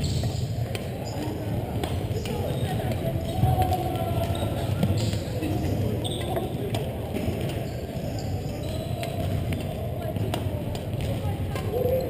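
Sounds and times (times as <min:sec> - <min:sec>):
rackets striking shuttlecock: 0:01.7 - 0:05.3.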